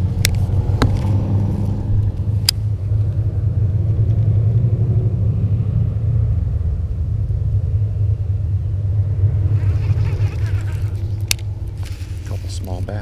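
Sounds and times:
wind buffeting microphone: 0:00.0 - 0:03.4.

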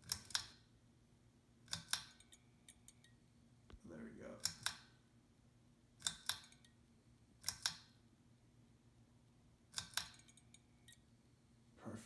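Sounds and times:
sharp clicks: 0:04.4 - 0:05.0, 0:06.0 - 0:06.7, 0:07.4 - 0:08.0.

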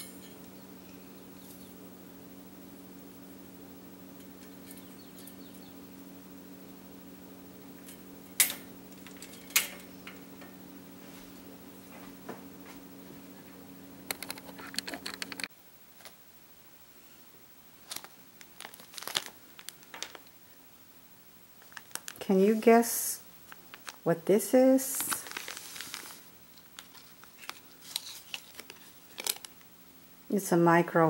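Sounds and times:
steady low hum: 0:00.0 - 0:31.0
plastic wrapper crinkling: 0:17.8 - 0:20.3, 0:21.6 - 0:22.6, 0:23.5 - 0:24.1, 0:24.9 - 0:29.7.

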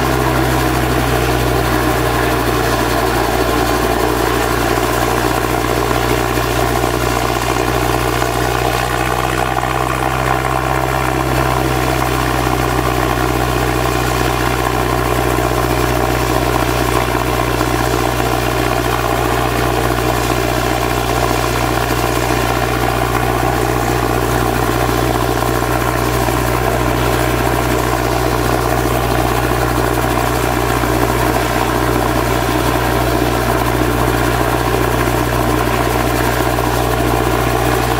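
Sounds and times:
helicopter idling: 0:00.0 - 0:37.9.

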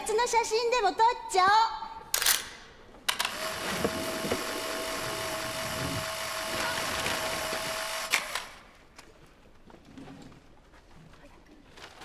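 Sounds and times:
camera motor whirring: 0:03.2 - 0:08.7.

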